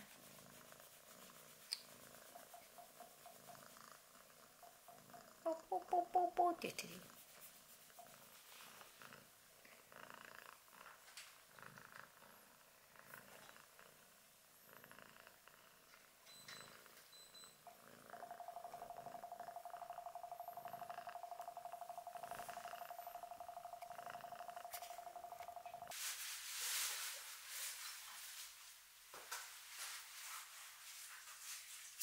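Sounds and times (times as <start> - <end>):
cat purring: 0.0 - 26.0
steady hum: 18.1 - 25.9.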